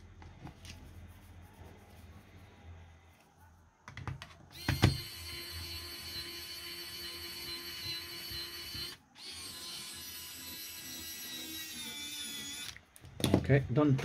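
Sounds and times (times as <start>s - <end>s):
electric screwdriver whine: 4.5s - 12.8s.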